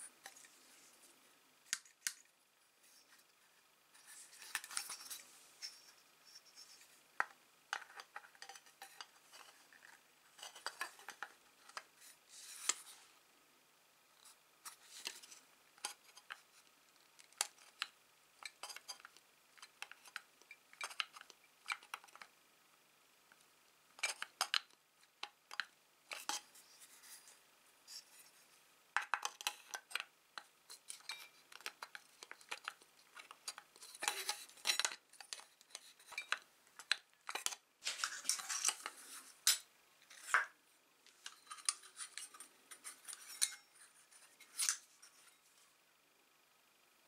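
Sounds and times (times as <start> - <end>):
pliers scraping metal: 33.8 - 38.9, 41.2 - 44.9.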